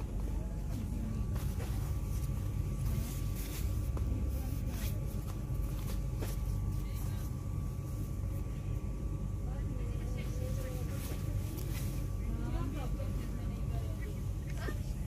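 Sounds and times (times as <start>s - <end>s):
cloth bags rustling and clicking: 0.0s - 8.2s
faint steady hum: 0.0s - 15.0s
low rumble of shop noise: 0.0s - 15.0s.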